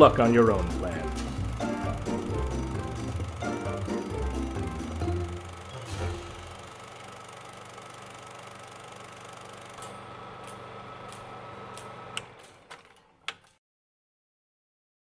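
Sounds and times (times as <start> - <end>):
film projector clatter: 0.0 - 13.6.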